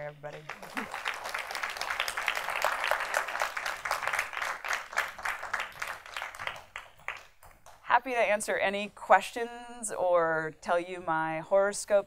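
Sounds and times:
audience applauding: 0.3s - 7.8s.

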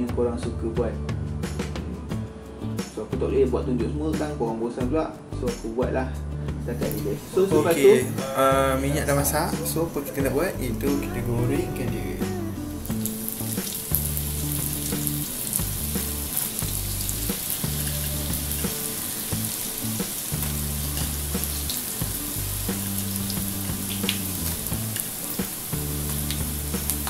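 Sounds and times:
pastries sizzling in hot oil: 12.8s - 27.0s.

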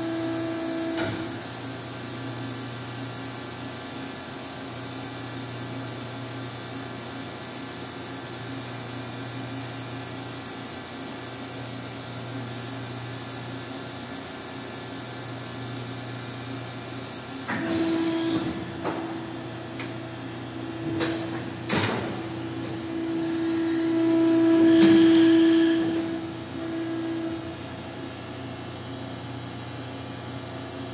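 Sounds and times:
machine clunks and knocks: 17.5s - 20.0s, 20.8s - 22.8s
machine humming: 17.5s - 28.3s.

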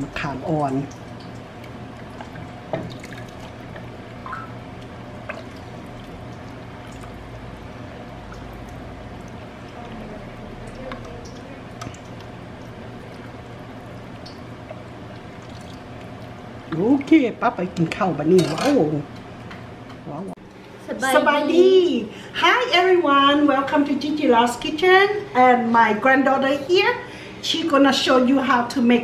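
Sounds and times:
liquid dripping: 0.0s - 18.2s
steady background hum: 0.0s - 29.0s.

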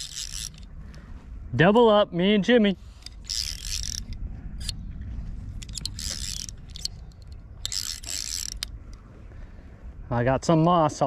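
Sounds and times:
fishing reel ratcheting clicks: 0.0s - 0.7s, 3.0s - 4.8s, 5.6s - 8.8s
low rumble: 0.0s - 10.3s.

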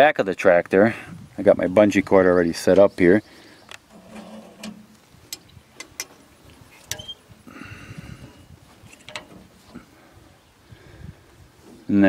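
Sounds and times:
metal hooks clicking and rattling: 8.9s - 9.5s.

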